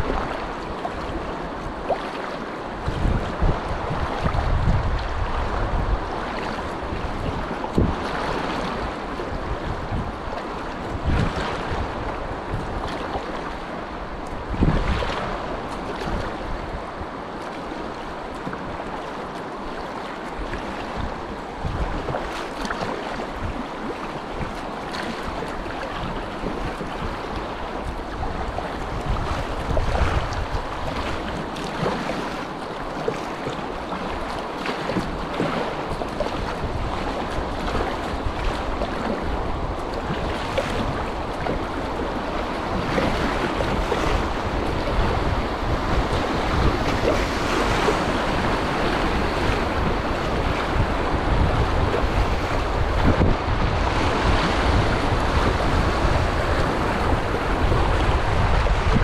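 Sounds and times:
rushing whitewater: 0.0s - 59.0s
wind buffeting the microphone: 0.0s - 59.0s.

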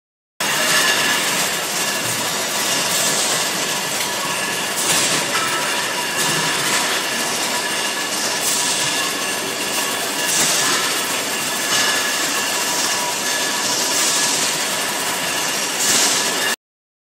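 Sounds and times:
machine din with high whine: 0.4s - 16.6s.

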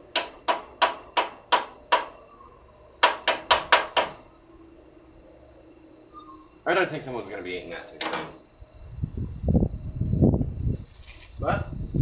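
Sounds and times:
insects chirring: 0.0s - 12.0s
hard knocks inside microwave: 0.2s - 2.1s, 3.0s - 4.2s.

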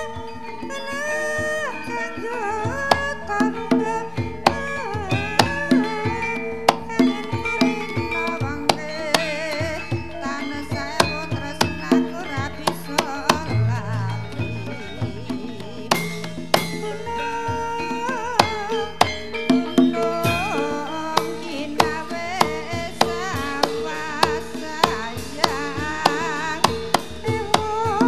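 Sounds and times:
gamelan melody with held tones: 0.0s - 28.0s
hand drum strokes: 1.4s - 28.0s.

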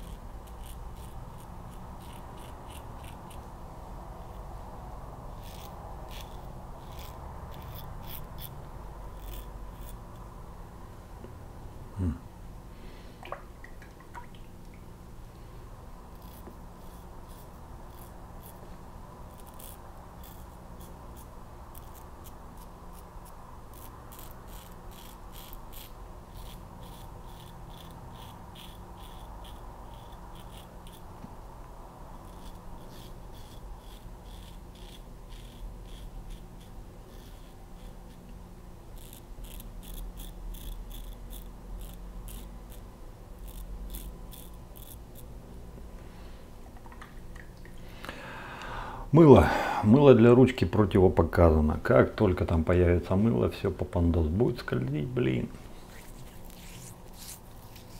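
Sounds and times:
razor scraping stubble: 0.0s - 4.5s, 5.2s - 10.3s, 16.1s - 31.3s, 32.1s - 45.4s, 54.7s - 57.9s.

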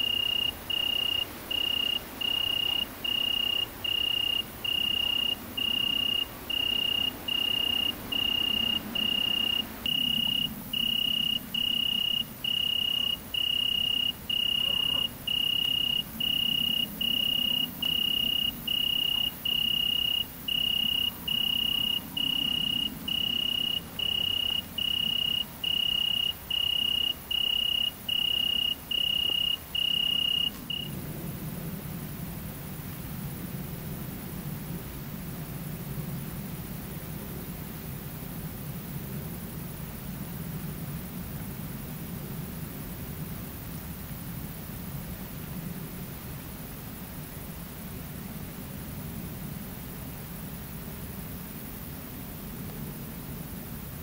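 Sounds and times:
cricket trilling: 0.0s - 33.1s.

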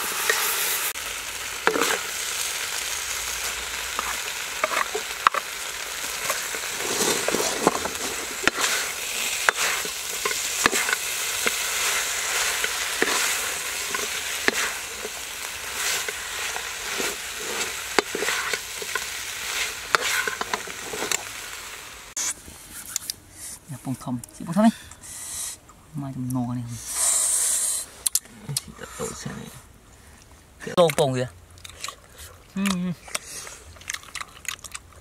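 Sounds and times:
food sizzling in a wok: 0.0s - 22.3s
spatula scraping a pan: 1.6s - 2.2s, 3.9s - 21.4s.

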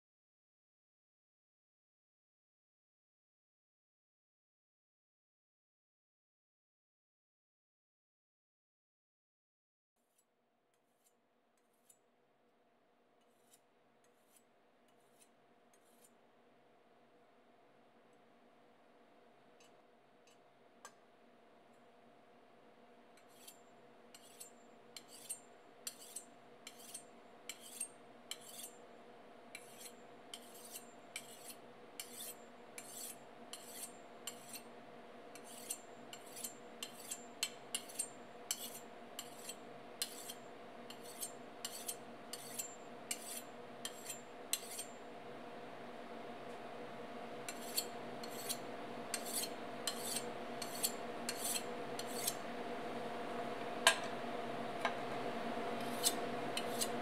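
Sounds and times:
faint steady hum: 12.5s - 57.0s
knife scraping on honing steel: 13.2s - 16.2s, 23.2s - 28.8s, 29.5s - 34.7s, 35.3s - 45.0s, 47.5s - 52.4s, 55.8s - 57.0s.

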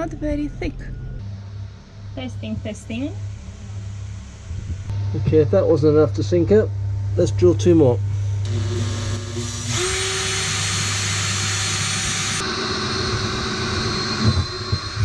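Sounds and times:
cordless drill boring through hull: 8.5s - 15.0s.

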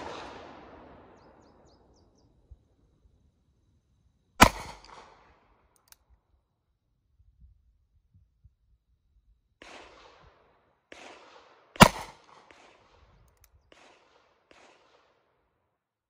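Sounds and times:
loud gunshot: 0.0s - 1.8s, 4.4s - 5.2s, 11.0s - 12.8s
faint gunshots with echo: 0.0s - 2.3s, 4.4s - 5.5s, 9.6s - 15.4s.

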